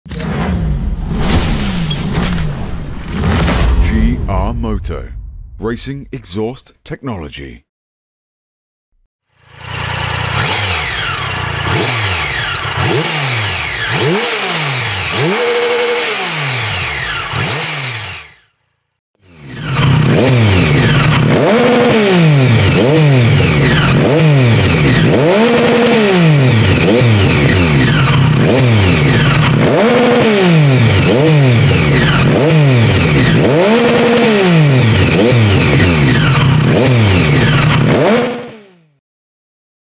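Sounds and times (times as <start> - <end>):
motorcycle engine revving: 9.2 - 39.0.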